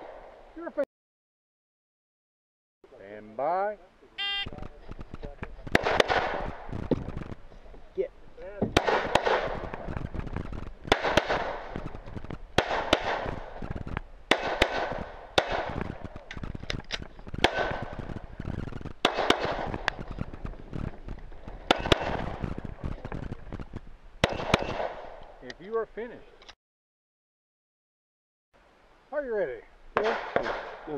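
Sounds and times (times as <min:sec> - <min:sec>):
pistol shots with echo: 0:05.7 - 0:07.4, 0:08.7 - 0:16.5, 0:17.4 - 0:18.4, 0:19.0 - 0:20.5, 0:21.4 - 0:25.3, 0:30.0 - 0:30.9.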